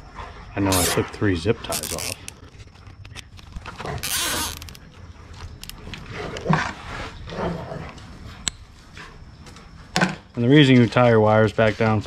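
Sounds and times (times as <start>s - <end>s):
zip tie ratcheting rasp: 1.7s - 2.4s, 4.0s - 4.8s
dog growling: 5.8s - 8.0s.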